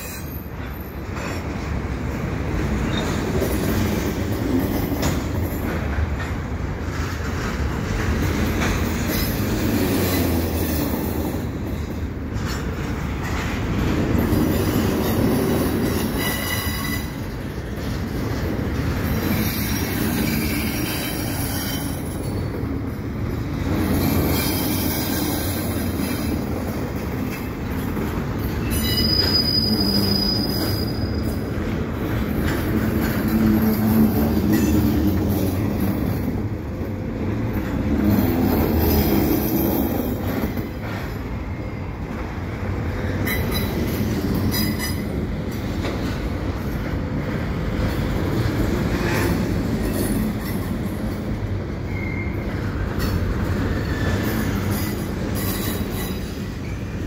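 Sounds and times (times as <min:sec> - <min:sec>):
train wheels rumbling on rail: 0:00.0 - 0:57.0
high thin wheel squeal: 0:16.0 - 0:17.2, 0:28.6 - 0:31.4, 0:51.9 - 0:52.5.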